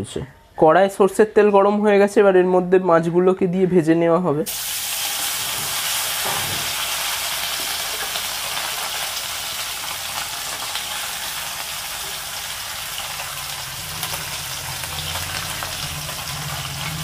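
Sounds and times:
fish frying in oil: 4.5 - 17.0.

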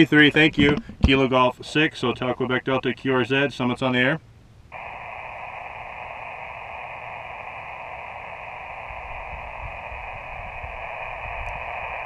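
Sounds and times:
faint low rumble: 4.7 - 12.0
radio static hiss: 4.7 - 12.0.

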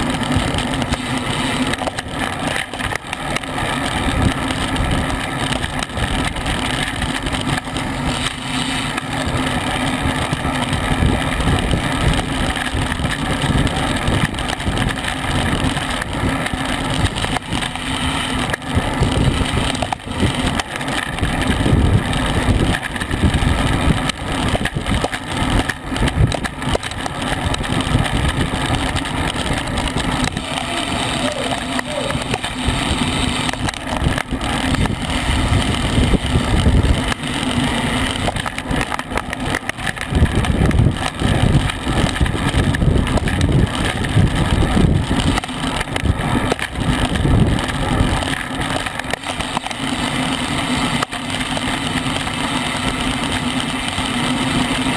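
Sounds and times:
wind buffeting microphone: 9.3 - 49.5.

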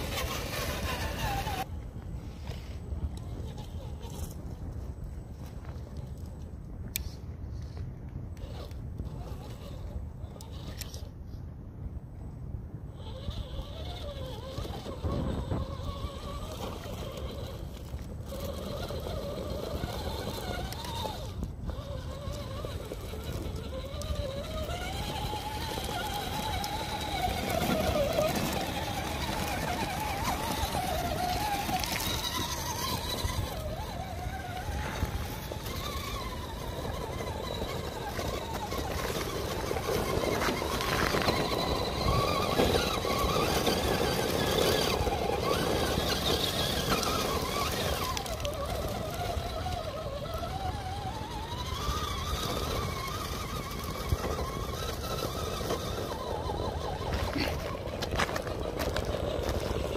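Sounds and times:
electric motor whining: 0.0 - 1.7, 12.9 - 59.9.

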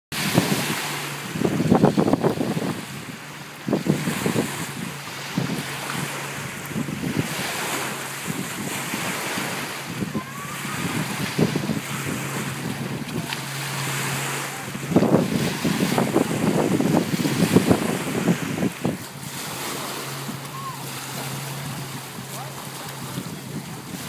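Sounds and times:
waves lapping against shore: 0.1 - 24.0
wind buffeting microphone: 0.1 - 24.0
steady low drone: 0.5 - 24.0.

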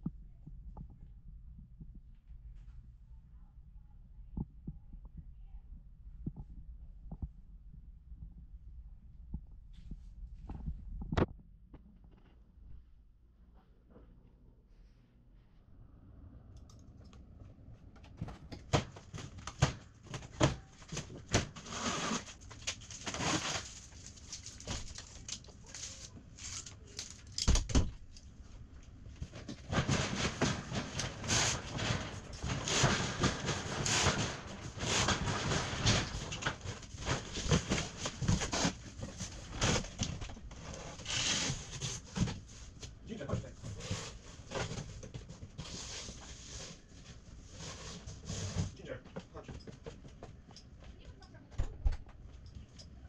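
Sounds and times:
cardboard scraping and rustling: 18.2 - 27.0, 29.2 - 42.9, 43.5 - 48.8.

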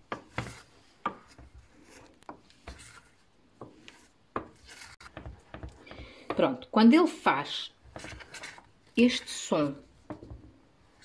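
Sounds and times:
wooden spoon scraping a saucepan: 0.0 - 6.7, 7.4 - 11.0.

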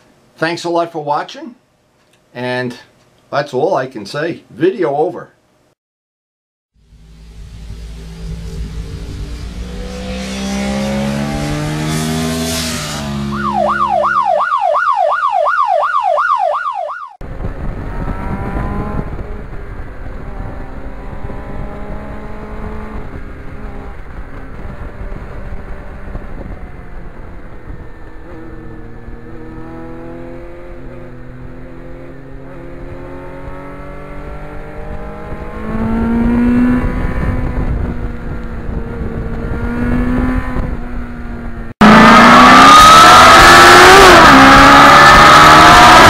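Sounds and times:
motorcycle engine revving: 6.8 - 14.2, 17.2 - 46.0.

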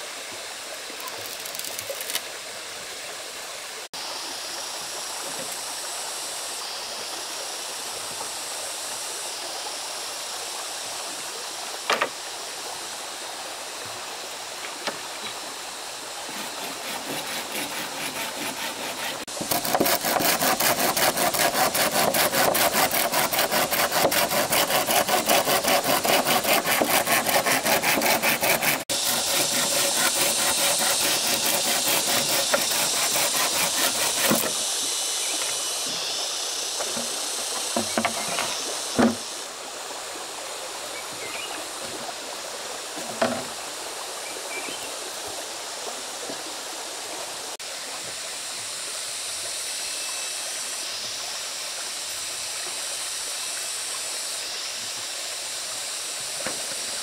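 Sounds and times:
running water: 0.0 - 57.0
hand saw cutting wood: 16.2 - 34.7, 36.8 - 39.3, 43.0 - 43.5.

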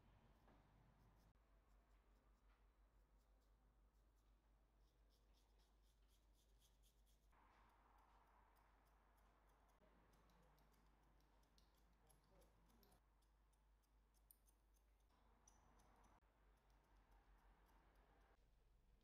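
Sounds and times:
faint irregular clicks: 2.4 - 18.4
low steady hum: 7.4 - 19.0.

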